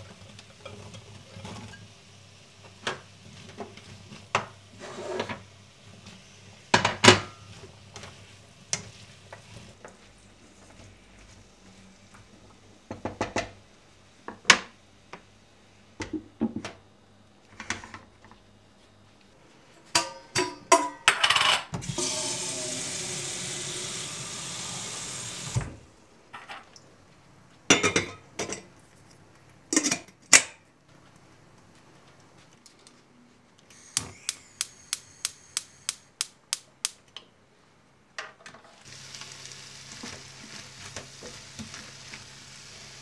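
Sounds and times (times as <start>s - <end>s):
tap running water: 21.8s - 25.8s, 33.7s - 37.0s, 38.9s - 43.0s.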